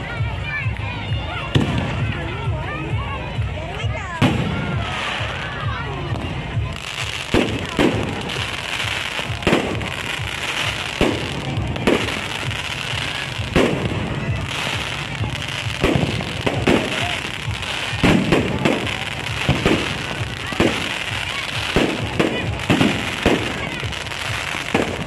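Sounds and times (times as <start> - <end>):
fireworks crackling: 0.0 - 25.0
fireworks bangs: 4.2 - 25.0.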